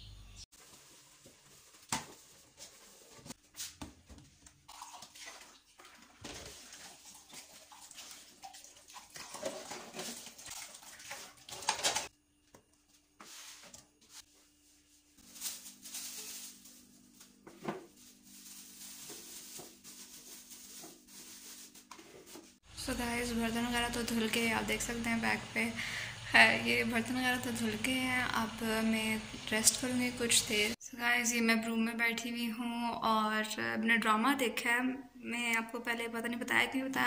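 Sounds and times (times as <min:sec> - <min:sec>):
dish scrubbing: 0:00.5 - 0:12.1, 0:13.2 - 0:26.1.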